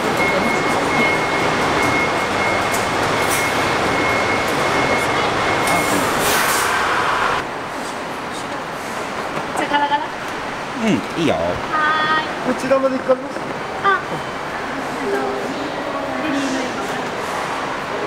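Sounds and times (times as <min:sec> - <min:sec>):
high engine whine: 0:00.0 - 0:09.5
diesel bus idling: 0:00.0 - 0:12.5.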